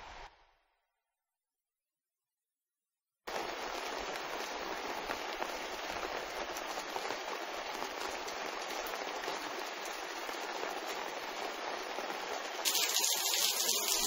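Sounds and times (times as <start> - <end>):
rain on leaves and roof: 3.3 - 14.0.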